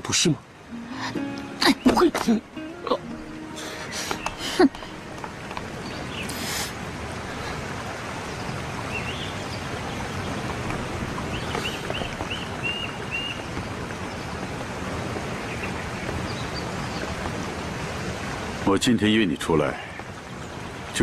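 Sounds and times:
outdoor background noise: 0.0 - 21.0.

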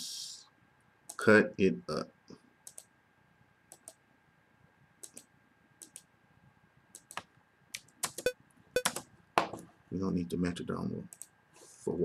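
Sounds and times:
computer mouse clicks: 2.6 - 2.9, 3.7 - 4.0, 5.0 - 6.1, 6.9 - 9.0, 11.1 - 11.3.

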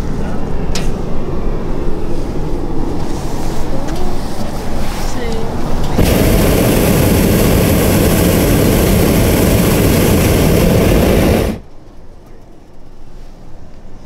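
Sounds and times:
propane burner blast: 5.8 - 11.7.

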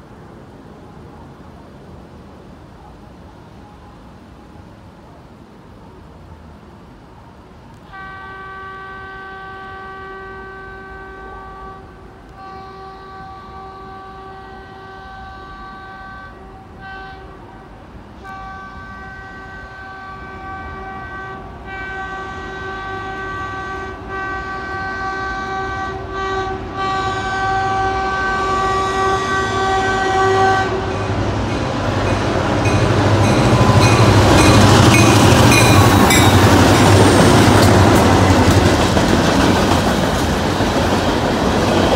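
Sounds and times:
locomotive horn blasts: 7.8 - 38.5
train wheel noise: 9.0 - 41.9.

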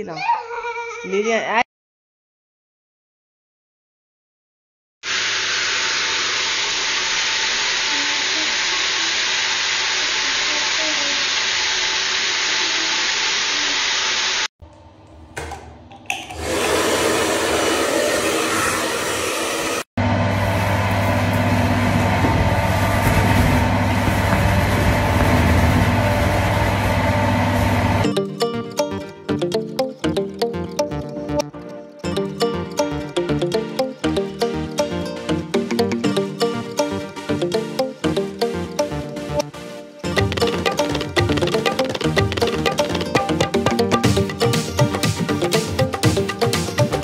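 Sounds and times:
hair dryer blowing: 5.0 - 14.5, 16.4 - 28.0.

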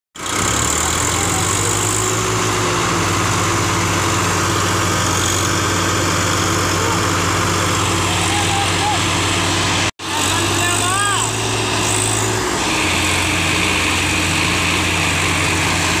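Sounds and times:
tractor diesel engines under load: 0.2 - 16.0.

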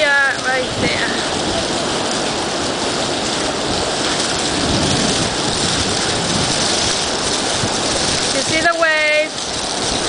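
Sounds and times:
rain: 0.0 - 10.0
wind: 0.0 - 10.0.

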